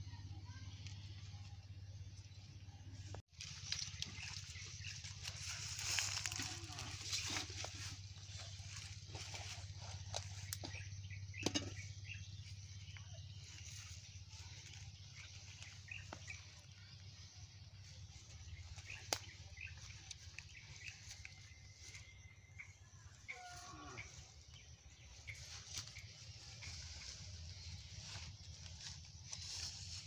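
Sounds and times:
faint chirps: 0.0s - 30.0s
steady low hum: 0.0s - 30.0s
leaves rustling on grass: 3.3s - 10.5s, 13.2s - 22.2s, 25.0s - 30.0s.

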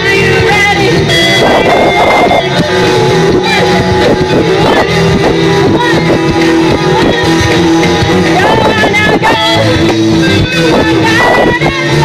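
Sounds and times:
live rock band playing: 0.0s - 12.0s.

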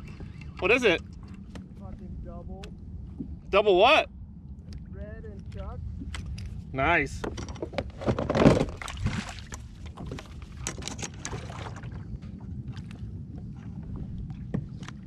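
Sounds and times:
water sloshing against kayak hull: 0.0s - 3.5s, 7.2s - 15.0s
fishing gear clicks and knocks: 7.2s - 11.5s
splashing: 8.4s - 10.3s, 11.2s - 12.1s.

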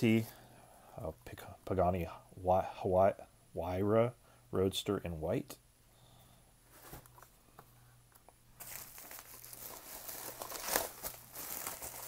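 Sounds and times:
bubble wrap crinkling: 8.6s - 12.0s.

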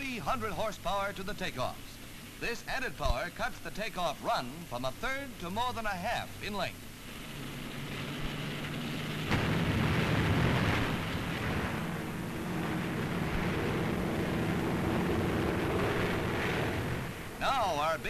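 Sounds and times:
propeller plane engine drone: 4.6s - 18.0s
rocket takeoff units roaring: 5.0s - 18.0s.

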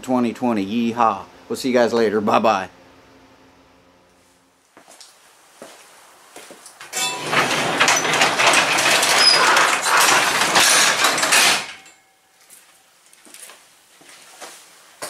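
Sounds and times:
garage door rattling on rollers: 6.9s - 12.0s.

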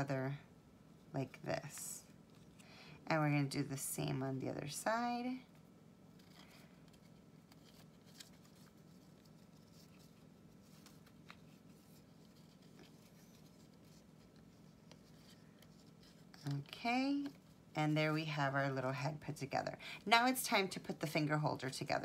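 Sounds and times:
low steady hum: 0.0s - 22.0s
paper rustling and crinkling: 6.1s - 17.6s.

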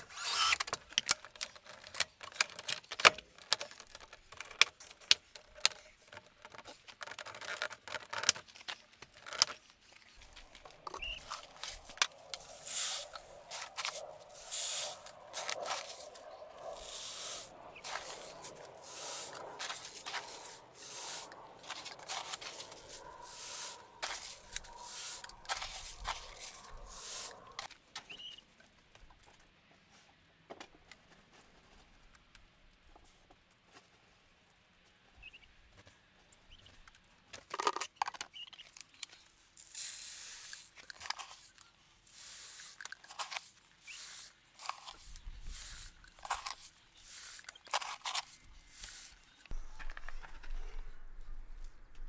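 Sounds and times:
plastic pipe fittings clicking: 0.5s - 14.1s
dry grain feed being poured: 11.2s - 27.7s, 39.6s - 40.7s, 42.0s - 49.2s.

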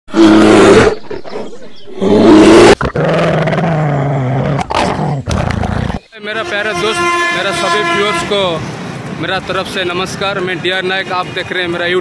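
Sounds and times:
animal roaring and growling: 0.1s - 6.1s.

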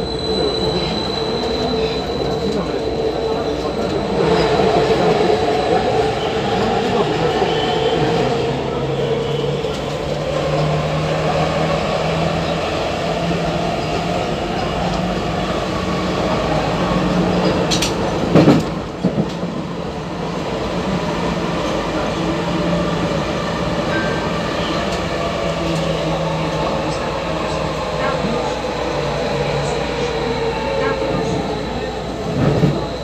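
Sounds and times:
electric train hum and rumble: 0.0s - 33.0s
sharp train clacks: 17.1s - 19.6s.

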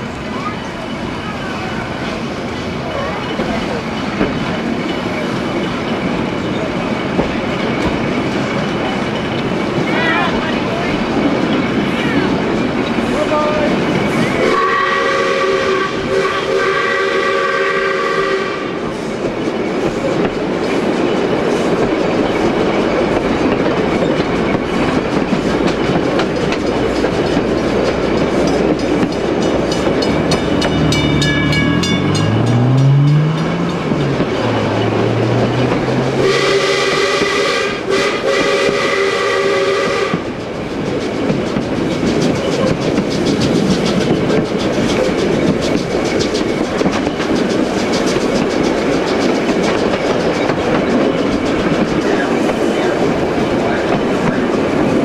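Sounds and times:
train wheels clattering over rail joints: 0.7s - 17.0s, 18.7s - 39.0s, 39.8s - 55.0s
steam whistle chord: 14.4s - 18.6s, 36.2s - 40.2s
level crossing bells ringing: 28.5s - 36.0s.

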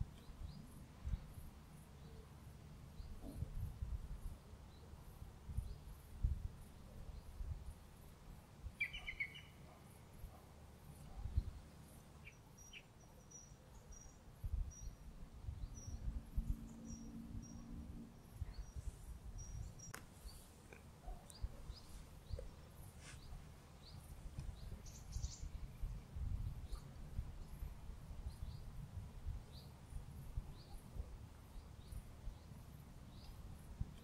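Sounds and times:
faint low hum: 0.0s - 34.0s
small birds chirping: 8.7s - 28.8s.

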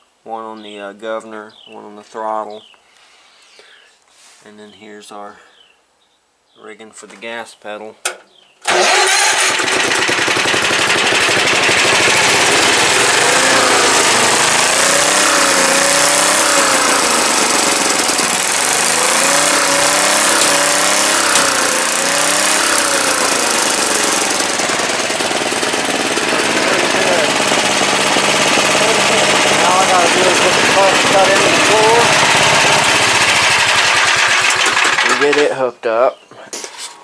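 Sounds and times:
lawn mower engine running: 8.6s - 35.6s.

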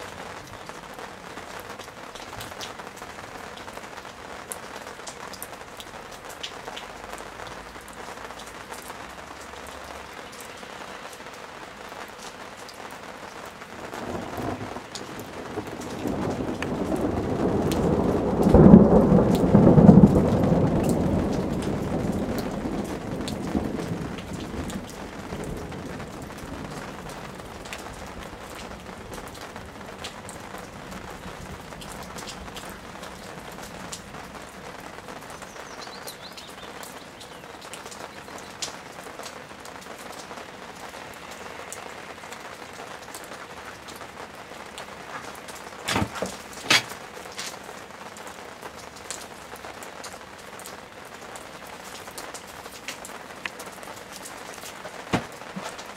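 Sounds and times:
steady rain with dripping: 0.0s - 55.9s
thunder rumble: 13.8s - 34.5s.

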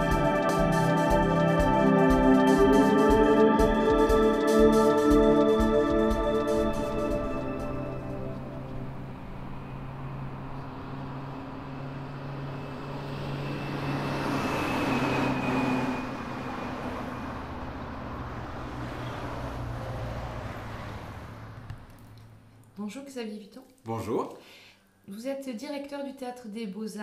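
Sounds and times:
vehicle passing: 1.9s - 22.7s.

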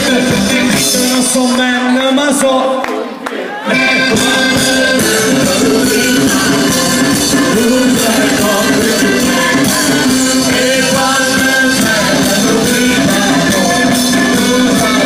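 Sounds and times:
live band playing loud music: 0.0s - 15.0s
person singing: 0.0s - 15.0s.

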